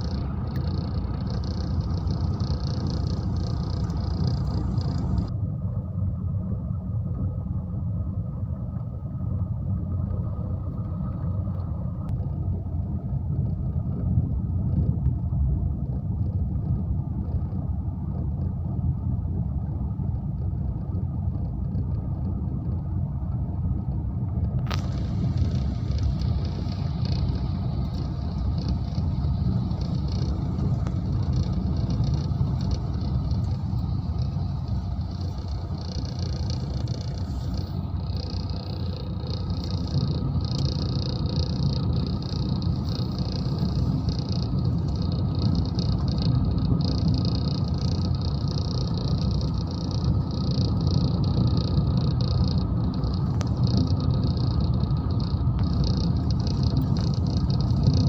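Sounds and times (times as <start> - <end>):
tyres and engine rumble on gravel: 0.0 - 5.4, 21.5 - 58.0.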